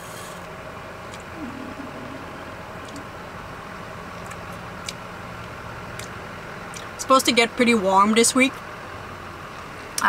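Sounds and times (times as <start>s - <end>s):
low mechanical hum: 0.0s - 10.0s
low murmur of voice: 1.4s - 3.0s.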